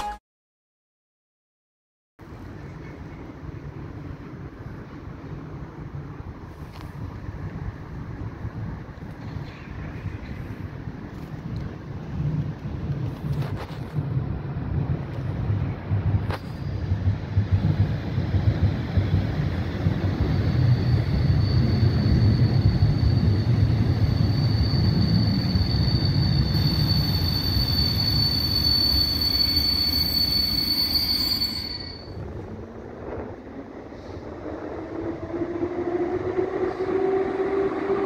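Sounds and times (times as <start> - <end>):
train rumbling: 2.2 - 38.0
high-pitched brake squeal: 20.2 - 32.2.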